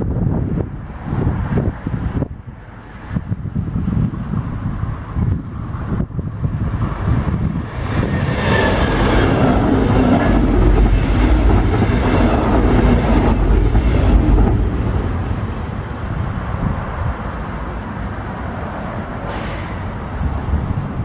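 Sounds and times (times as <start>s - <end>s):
train passing: 0.0s - 21.0s.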